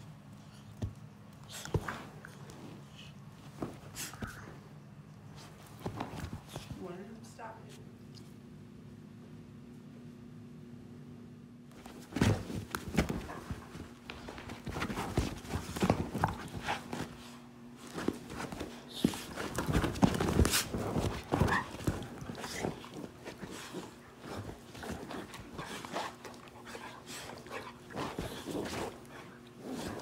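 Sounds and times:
scuffling on couch cushions: 11.7 - 30.0
dog panting: 13.0 - 30.0.

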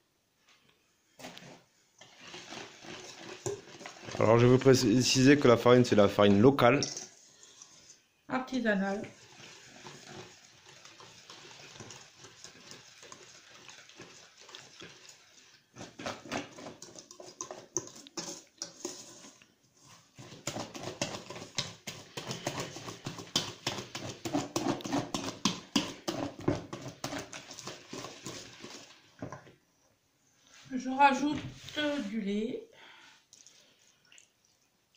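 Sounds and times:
whisk beating batter in metal bowl: 2.0 - 8.0, 9.0 - 29.1.

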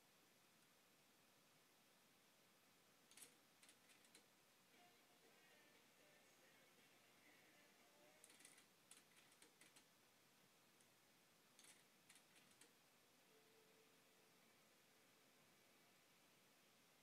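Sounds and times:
faint clicks: 3.1 - 4.3, 8.2 - 9.9, 11.6 - 12.8.

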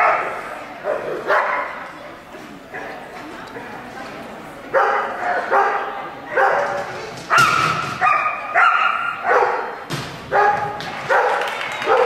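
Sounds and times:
dog barking: 0.0 - 1.8, 4.8 - 12.0.

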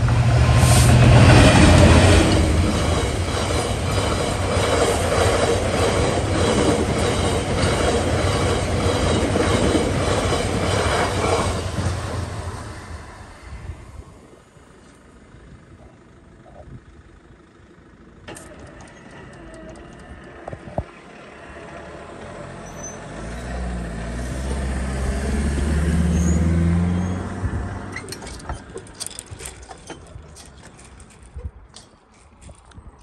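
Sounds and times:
vehicles rattling over rails: 0.0 - 32.7
vehicle engine passing: 20.1 - 27.9.

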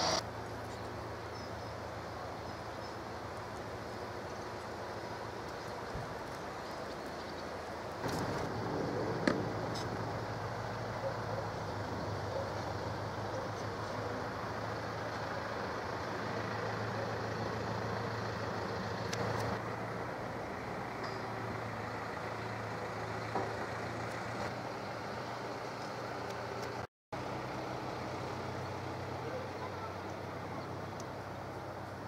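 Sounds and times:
low engine-like drone: 6.5 - 32.0.

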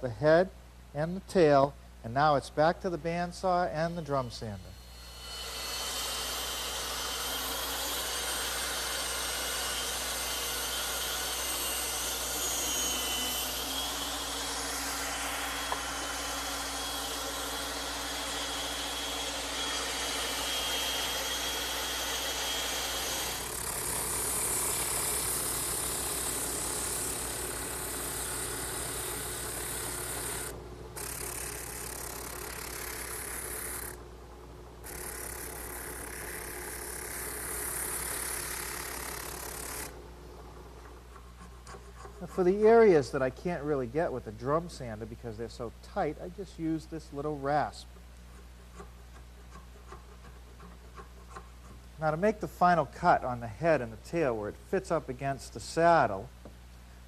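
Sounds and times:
bandsaw cutting wood: 3.9 - 34.1, 34.8 - 40.0, 48.7 - 53.3
drum sander spinning: 5.4 - 42.8.

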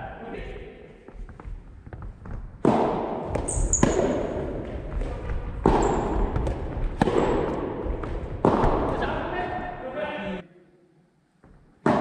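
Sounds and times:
rackets hitting tennis ball: 1.2 - 9.4, 11.5 - 12.0.

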